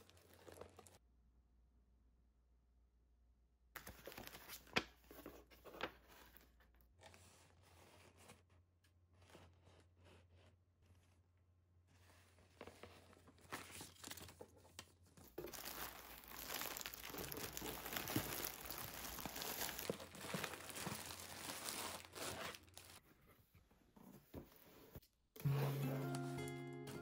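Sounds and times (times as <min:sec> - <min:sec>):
plastic packaging crinkling: 0:00.0 - 0:01.0, 0:15.2 - 0:23.0.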